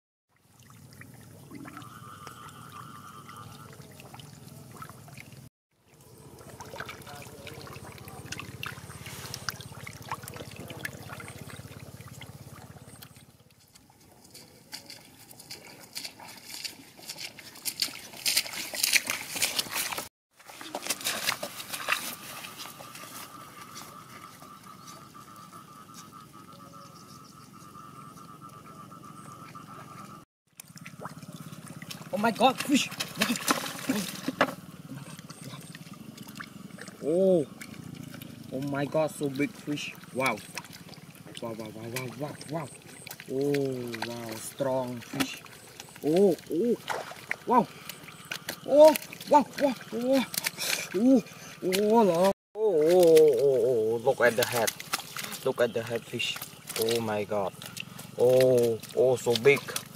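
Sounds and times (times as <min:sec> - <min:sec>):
fish splashing in shallow water: 0:00.3 - 0:26.6, 0:29.6 - 0:59.9
faint wavering high trill: 0:01.4 - 0:04.1, 0:22.0 - 0:30.2.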